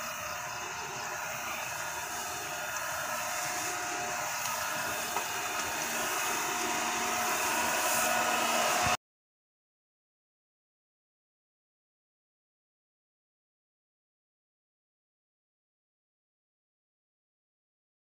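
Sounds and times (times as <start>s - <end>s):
mist sprayer blower whirring: 0.0s - 9.0s.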